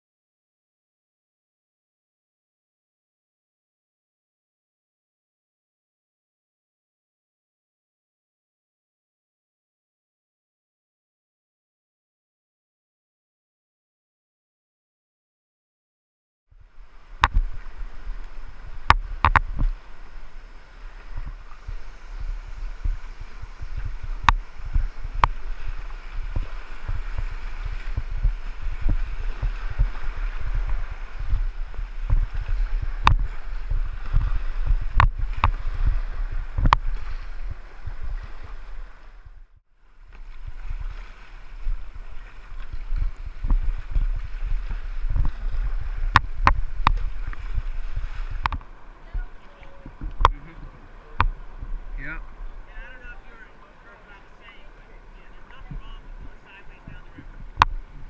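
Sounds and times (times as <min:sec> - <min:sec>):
whitewater rushing: 0:16.6 - 0:39.2, 0:40.0 - 0:58.0
water thumping on camera: 0:17.1 - 0:39.5, 0:40.1 - 0:52.3, 0:55.4 - 0:58.0
paddle stroke clicks: 0:17.2 - 0:19.8, 0:23.7 - 0:36.0, 0:36.6 - 0:37.1, 0:45.1 - 0:47.5, 0:48.3 - 0:48.7, 0:49.4 - 0:51.4.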